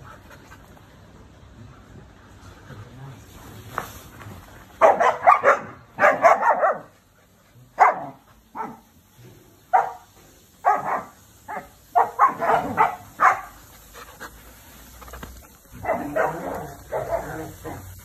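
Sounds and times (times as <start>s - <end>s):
dogs barking: 4.8s - 6.9s, 7.8s - 8.9s, 9.7s - 13.6s, 15.8s - 18.0s.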